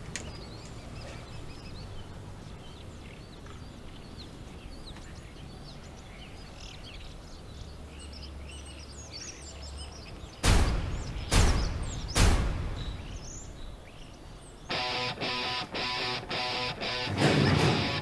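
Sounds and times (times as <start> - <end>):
small birds chirping: 0.0 - 18.0
steady low rumble: 10.4 - 14.5.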